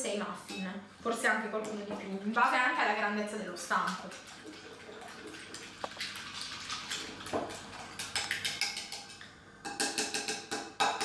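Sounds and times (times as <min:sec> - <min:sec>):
whisk beating eggs in glass bowl: 0:03.7 - 0:09.2.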